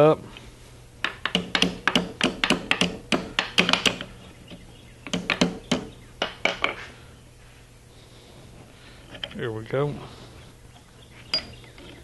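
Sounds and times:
hammer tapping on metal: 0:01.0 - 0:04.0.

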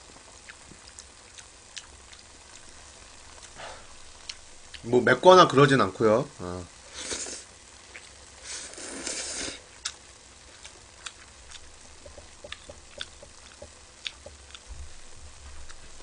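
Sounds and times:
person slurping noodles: 0:06.9 - 0:07.5, 0:08.4 - 0:09.6
mouth chewing clicks and smacks: 0:10.6 - 0:14.6.

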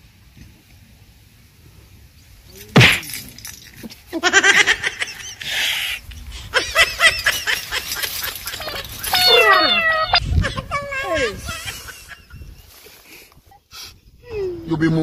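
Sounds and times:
sudden crash: 0:02.8 - 0:03.3
man wailing: 0:09.1 - 0:11.7.

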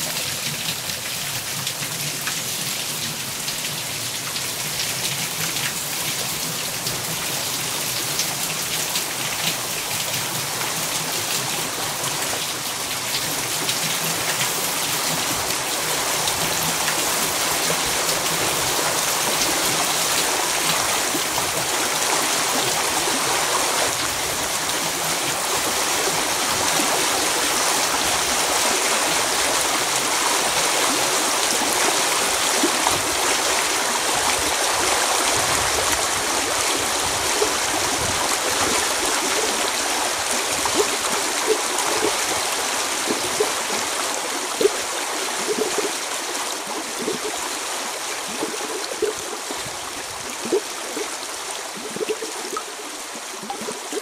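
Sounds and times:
water flowing: 0:00.0 - 0:54.0
water gurgles and drips: 0:00.0 - 0:54.0.

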